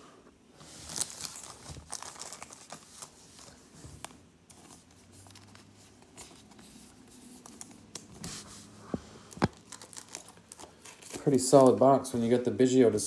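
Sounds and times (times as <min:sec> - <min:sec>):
trading cards rustling and clicking: 0:00.9 - 0:08.5, 0:09.2 - 0:12.0.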